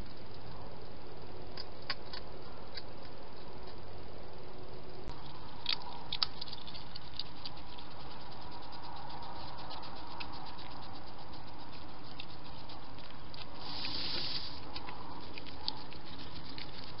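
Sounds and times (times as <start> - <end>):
hedgehog feet clicking on paving: 1.5 - 3.8, 5.1 - 17.0
rustling: 5.1 - 17.0.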